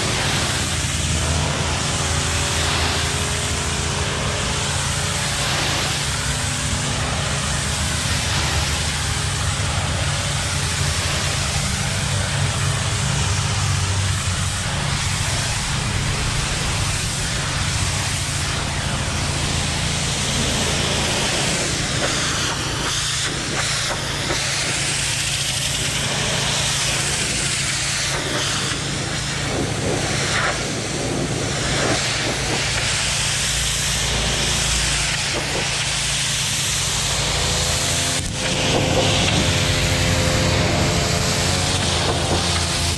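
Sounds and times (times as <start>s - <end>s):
pressure washer spray hiss: 0.0s - 42.9s
machine low hum: 0.2s - 23.4s.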